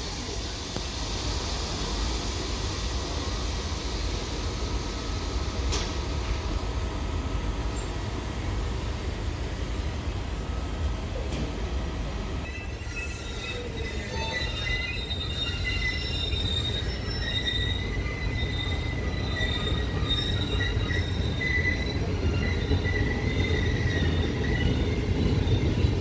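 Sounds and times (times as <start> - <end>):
train rumbling on rails: 0.0 - 26.0
high-pitched wheel squeal: 12.4 - 25.9.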